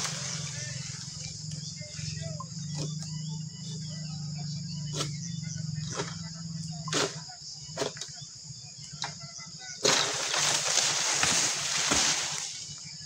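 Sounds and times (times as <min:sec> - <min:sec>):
fruit bunch rustling through fronds: 0:00.0 - 0:01.1, 0:09.8 - 0:12.7
insects droning: 0:00.0 - 0:13.0
sickle cutting stalk: 0:09.8 - 0:12.6.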